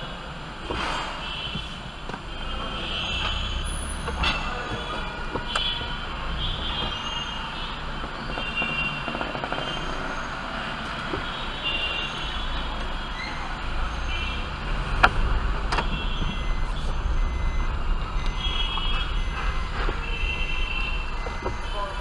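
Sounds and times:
engine and road rumble: 0.0 - 22.0
short high-pitched beeps: 15.8 - 22.0.

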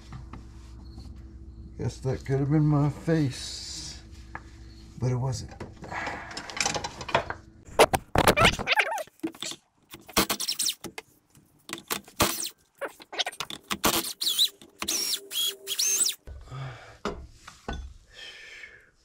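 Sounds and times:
short high squeaks: 8.2 - 10.9, 12.1 - 16.3.

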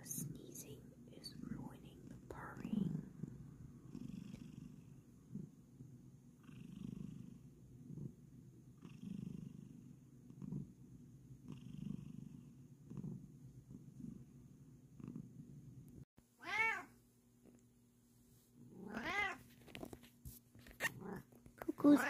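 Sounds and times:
cat purring: 0.0 - 16.0, 20.6 - 22.0.

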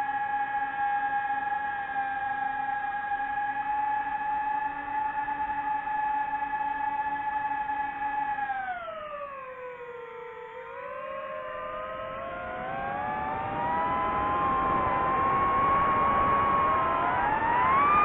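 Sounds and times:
drone motors and propellers whining: 11.8 - 18.0.

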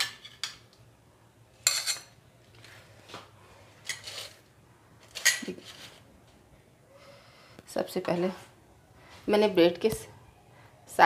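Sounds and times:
spoon and whisk clinking on bowls: 1.6 - 2.2.

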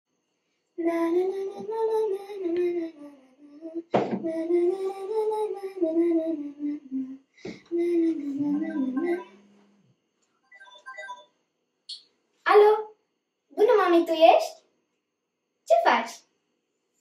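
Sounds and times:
woman singing: 0.8 - 9.4.

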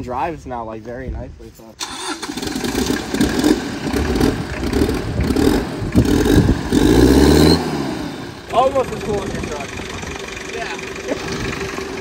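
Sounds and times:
diesel engine revving: 1.8 - 12.0.

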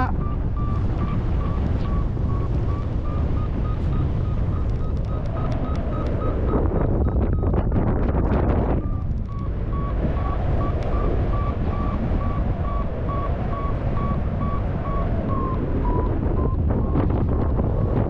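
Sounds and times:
variometer beeping: 0.0 - 18.0
wind buffeting microphone: 0.0 - 18.0.

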